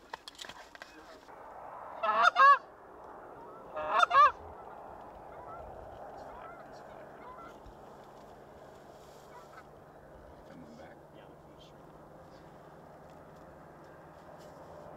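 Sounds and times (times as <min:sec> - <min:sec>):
geese honking: 0:01.8 - 0:10.0.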